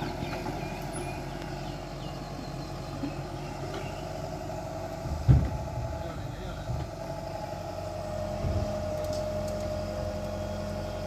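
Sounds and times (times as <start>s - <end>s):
excavator diesel engine running: 0.0s - 11.0s
sudden low thump: 5.0s - 5.9s.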